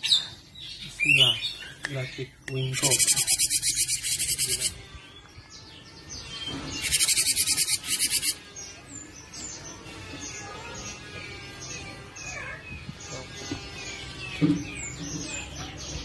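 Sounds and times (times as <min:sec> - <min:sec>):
bird chattering trills: 0:02.5 - 0:04.8, 0:06.8 - 0:08.4.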